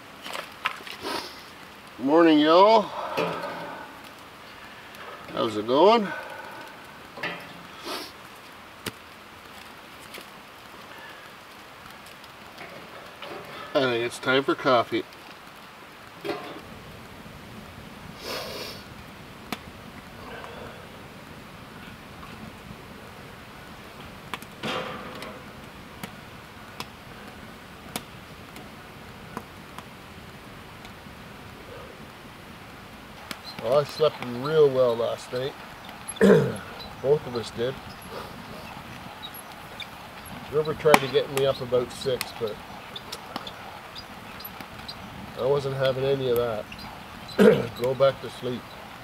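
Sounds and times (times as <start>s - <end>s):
fire crackle: 0.0s - 49.0s
wood fire hissing: 0.0s - 49.0s
sticks rustling: 2.8s - 14.4s
metal kettle clanking on grill: 2.9s - 3.8s, 7.1s - 7.8s, 12.6s - 13.7s, 16.2s - 16.6s, 24.6s - 25.6s.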